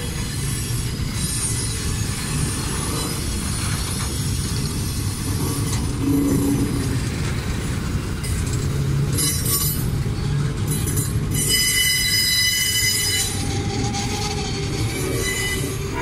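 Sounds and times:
train wheels squealing: 0.0 - 7.0, 9.1 - 16.0
freight train rumbling past: 0.0 - 16.0.

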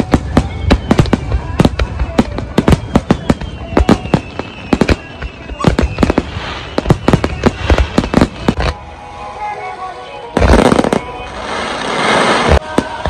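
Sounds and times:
firework bangs: 0.0 - 8.8, 10.4 - 13.0
firework crackling: 0.0 - 13.0.

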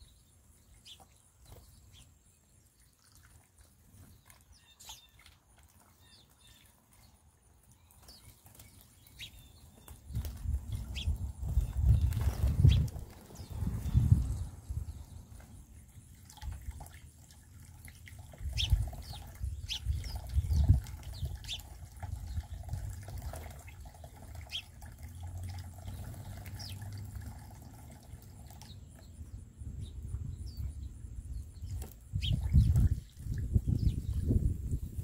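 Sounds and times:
sparrow chirps: 0.0 - 3.2, 4.0 - 16.0, 18.5 - 22.9, 23.6 - 24.8, 25.8 - 27.0, 28.4 - 35.0
fountain water splashing and trickling: 2.6 - 11.8, 12.8 - 29.1.

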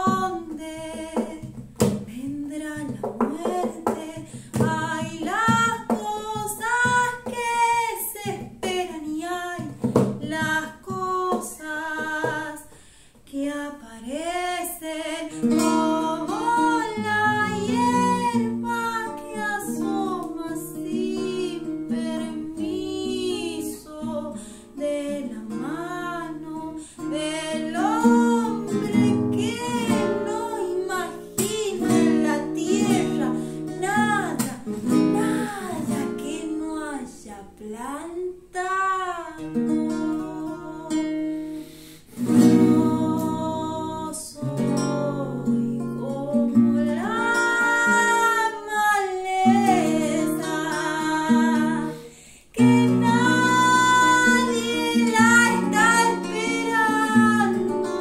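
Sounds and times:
woman singing: 0.0 - 41.6, 42.2 - 58.0
acoustic guitar chords: 14.4 - 37.4, 38.7 - 58.0.

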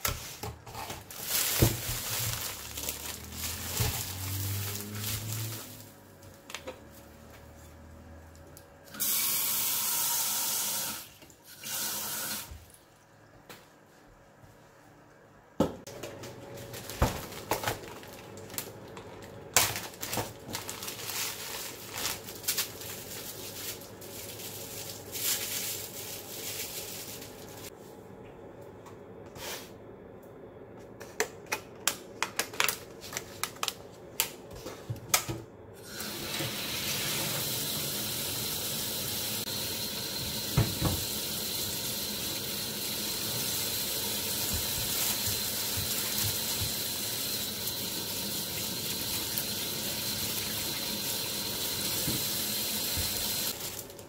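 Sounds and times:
running tap water: 8.9 - 12.6, 35.8 - 53.9.

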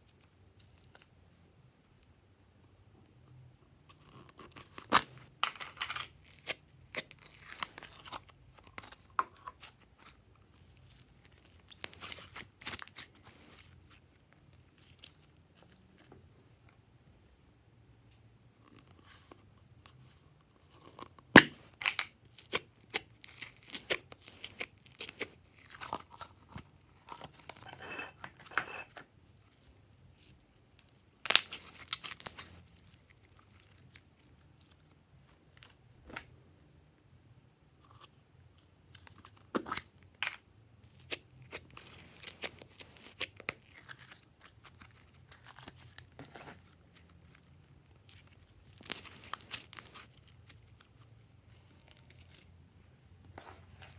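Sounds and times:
slime crackling and popping: 31.2 - 32.5, 47.9 - 50.9.

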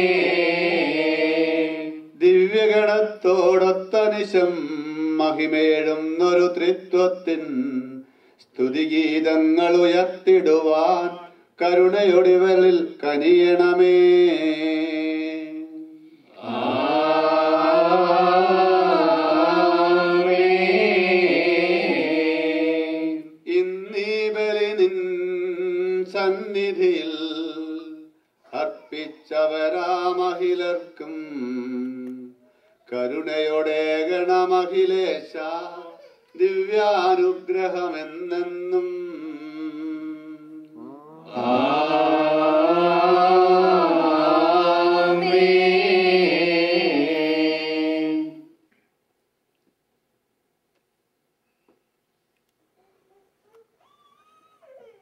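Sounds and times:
person singing a chant: 8.6 - 48.5.

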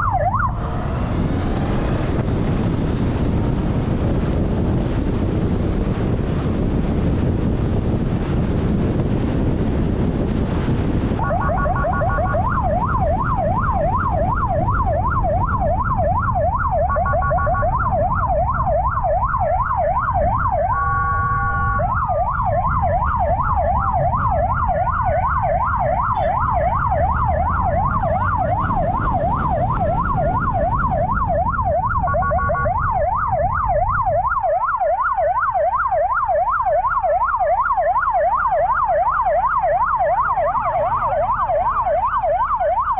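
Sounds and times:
police siren yelp: 0.0 - 5.6, 11.2 - 42.9
siren wail: 0.0 - 42.9
wind on microphone: 0.0 - 42.9
short horn blasts: 20.8 - 21.9.

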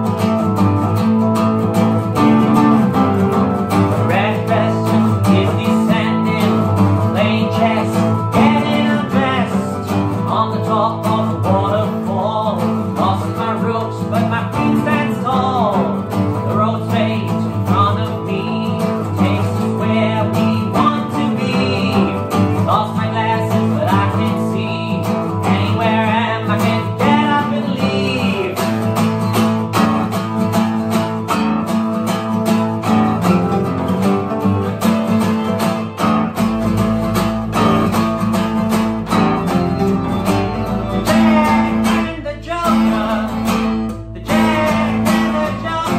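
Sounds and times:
acoustic guitars playing: 0.0 - 45.9
man singing: 2.2 - 29.3, 39.0 - 45.9.

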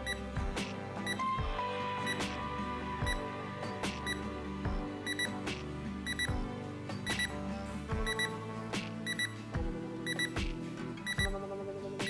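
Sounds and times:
alarm clock beeping: 0.0 - 0.3, 1.0 - 2.4, 3.0 - 3.3, 4.0 - 4.3, 5.0 - 5.4, 6.0 - 7.4, 8.0 - 8.4, 9.0 - 11.5
background music: 0.0 - 12.0.

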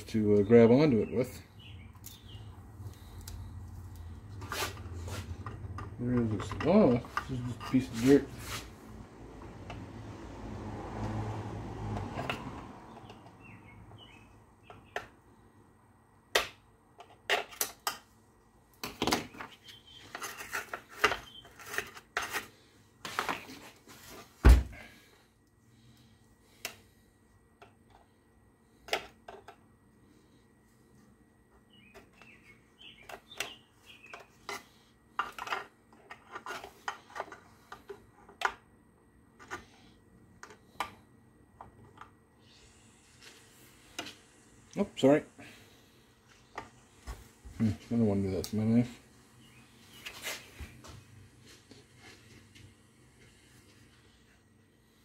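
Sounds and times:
faint bird chirps: 19.2 - 20.5, 31.6 - 34.4.

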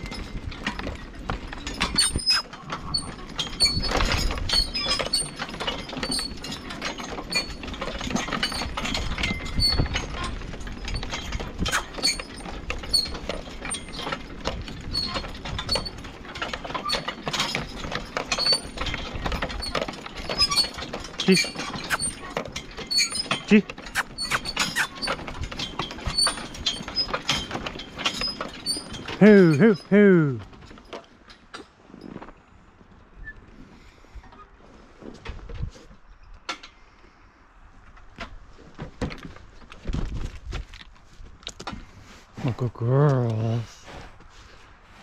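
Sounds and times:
harness gear clinking and rattling: 0.0 - 32.4
horses walking: 0.0 - 33.1, 37.5 - 45.0.

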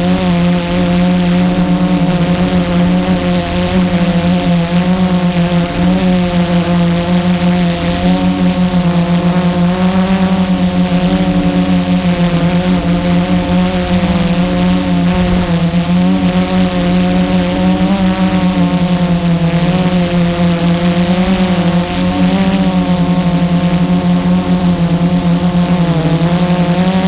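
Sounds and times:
quadcopter propellers buzzing: 0.0 - 27.0.

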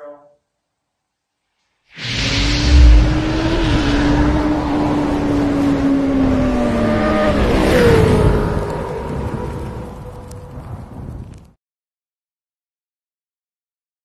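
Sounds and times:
deep boom: 2.0 - 4.8
motorcycle passing whoosh: 2.0 - 10.3.

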